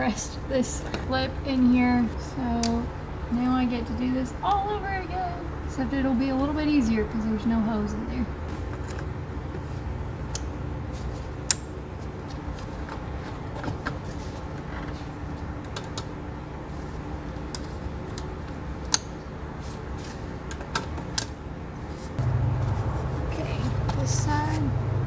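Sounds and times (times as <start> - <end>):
low background hum: 0.0 - 25.0.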